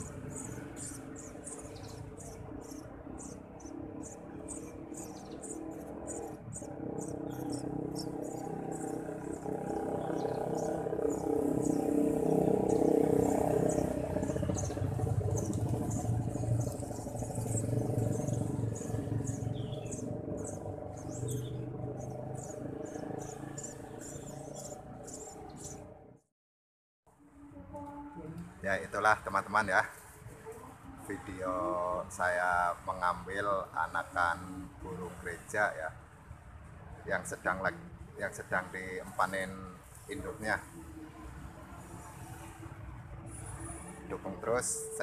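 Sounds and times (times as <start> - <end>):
nestlings chirping: 0.0 - 26.0.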